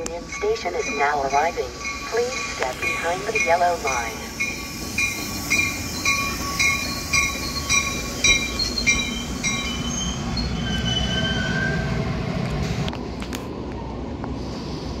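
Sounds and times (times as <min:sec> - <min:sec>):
train bell ringing: 0:00.0 - 0:11.7
low rumble of train cars rolling: 0:00.0 - 0:15.0
train brakes squealing: 0:00.2 - 0:12.0.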